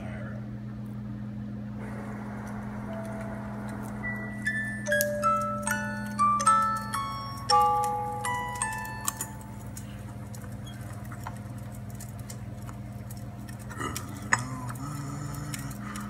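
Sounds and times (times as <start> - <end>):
steady low hum: 0.0 - 16.0
wood fire crackling: 1.8 - 16.0
music box notes: 2.9 - 9.8.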